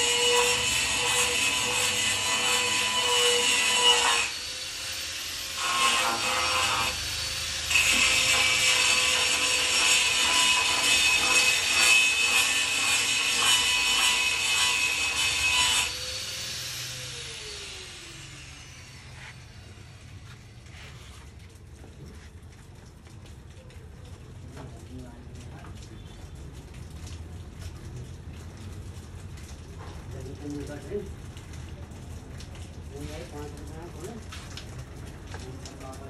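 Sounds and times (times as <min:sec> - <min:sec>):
power tool motor cutting: 0:00.0 - 0:20.4
motor winding down whine: 0:16.0 - 0:20.4.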